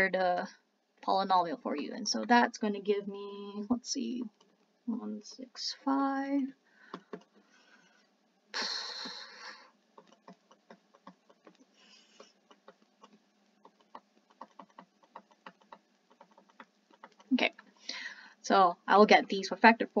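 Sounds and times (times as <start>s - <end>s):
breath into microphone: 6.7s - 8.1s, 17.8s - 18.4s
digital pen clicks and taps: 10.0s - 17.3s.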